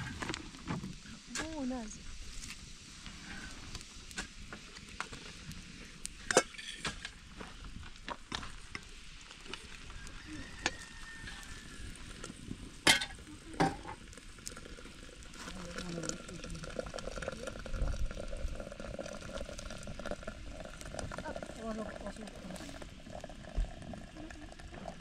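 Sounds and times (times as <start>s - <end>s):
wood fire crackling: 0.0s - 25.0s
sharp pops from fire: 0.1s - 9.8s, 10.6s - 15.4s.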